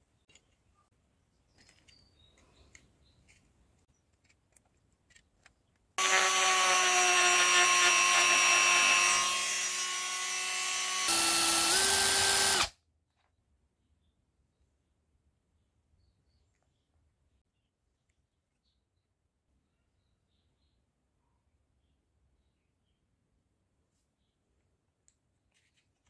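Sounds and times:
rotary tool grinding metal: 6.0 - 12.7.

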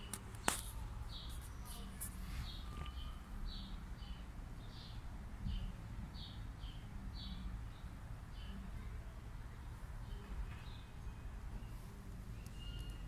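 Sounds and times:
small bird chirping: 0.4 - 7.4, 11.5 - 13.0.

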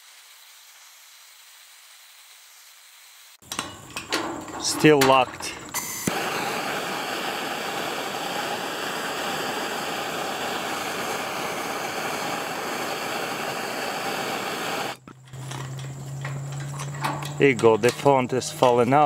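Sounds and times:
gas torch hissing: 0.0 - 15.0.

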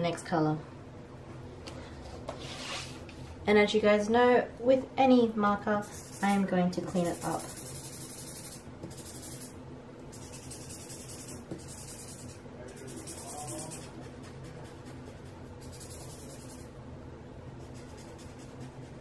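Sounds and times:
marker scribbling on paper: 5.8 - 16.7, 17.6 - 19.0.

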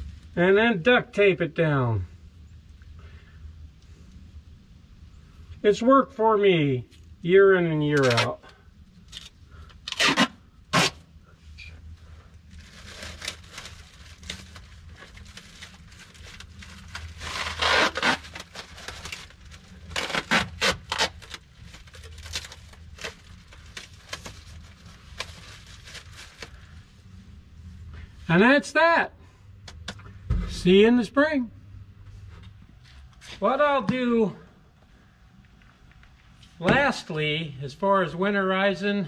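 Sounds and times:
duct tape ripping off roll: 8.0 - 8.4, 9.1 - 11.0, 16.4 - 24.6
plastic bag crinkling: 12.4 - 26.8.

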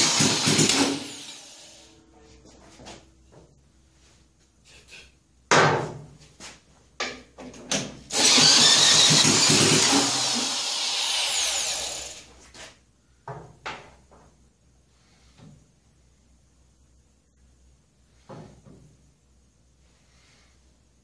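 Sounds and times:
electric drill cranking engine: 0.0 - 1.8, 8.1 - 12.3.

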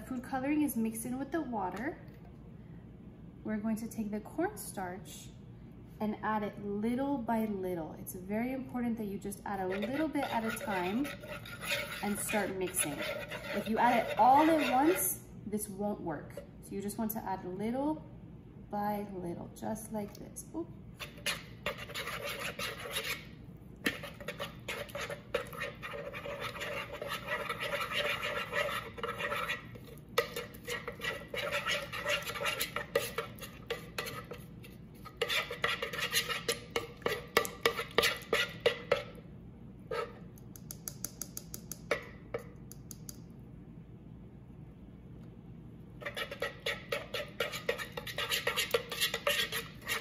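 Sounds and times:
metal spoon scraping a bowl: 9.5 - 15.2, 21.0 - 39.2, 39.9 - 40.2, 46.0 - 50.0.

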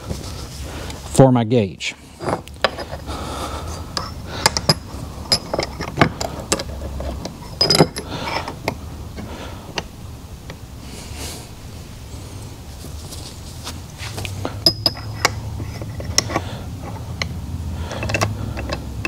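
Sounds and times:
small steel parts clicking: 3.9 - 8.8, 14.6 - 19.0.

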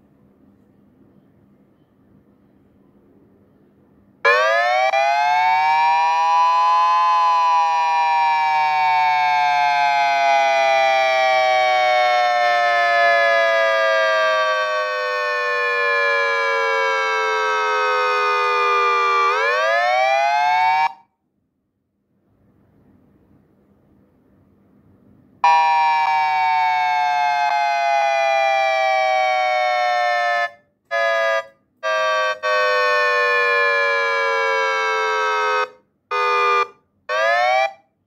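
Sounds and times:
siren tone through speaker: 25.4 - 36.4.

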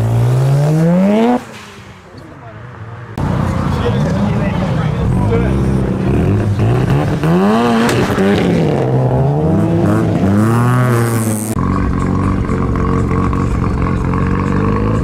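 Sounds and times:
rotary engine revving: 3.2 - 15.0.

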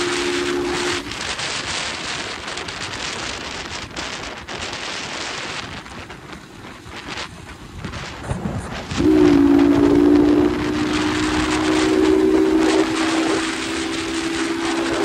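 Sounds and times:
wind buffeting microphone: 0.0 - 15.0
motorcycle engine: 8.8 - 15.0.

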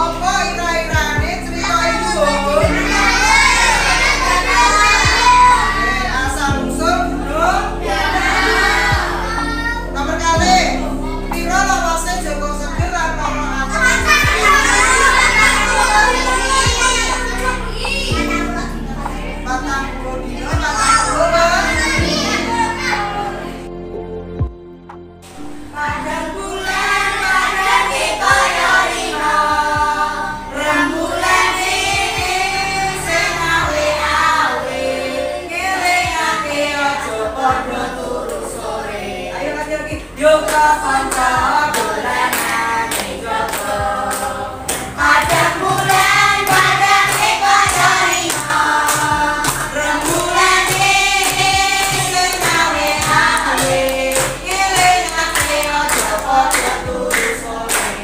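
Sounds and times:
children singing together: 0.0 - 23.8, 25.2 - 58.0
children clapping: 40.5 - 58.0.

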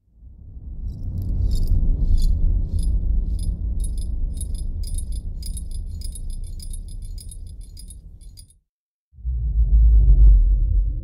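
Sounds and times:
metallic jingling ticking: 1.3 - 8.6
deep sub-bass rumble: 9.2 - 11.0.

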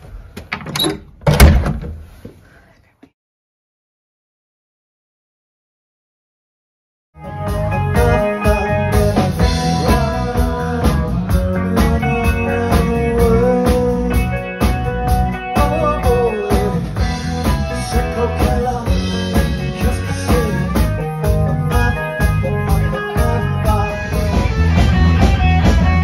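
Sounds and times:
drum kit: 7.2 - 26.0
electric guitar: 7.2 - 26.0
man singing into microphone: 7.8 - 14.4, 15.5 - 20.9, 21.5 - 24.3.

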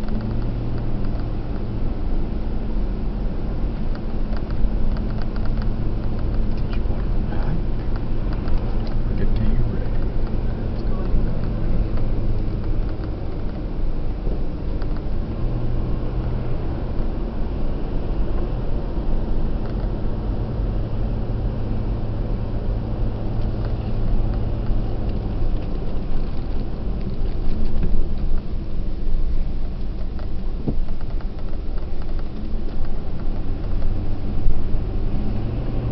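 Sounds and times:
car cabin road rumble: 0.0 - 35.9
engine low hum: 0.0 - 35.9.

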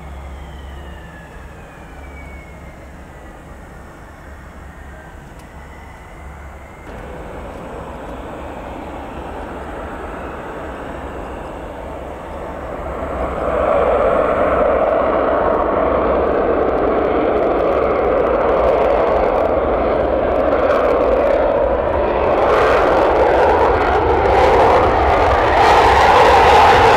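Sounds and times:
jet engine rush: 0.0 - 26.9.

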